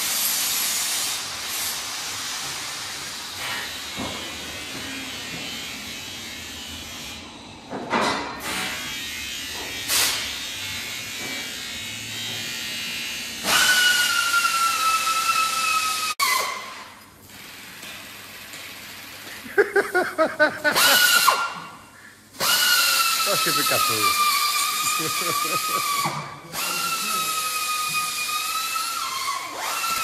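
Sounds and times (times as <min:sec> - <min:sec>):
power tool whining: 0:20.6 - 0:21.6, 0:22.3 - 0:30.0.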